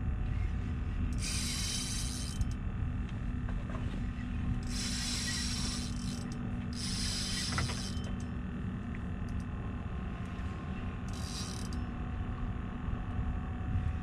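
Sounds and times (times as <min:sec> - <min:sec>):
fishing reel whirring: 0:01.1 - 0:02.6, 0:04.6 - 0:08.4, 0:09.2 - 0:09.5, 0:11.0 - 0:12.0.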